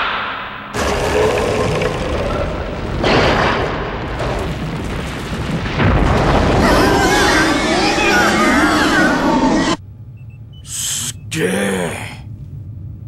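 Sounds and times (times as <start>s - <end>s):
explosion booms with low rumble: 0.0s - 8.1s.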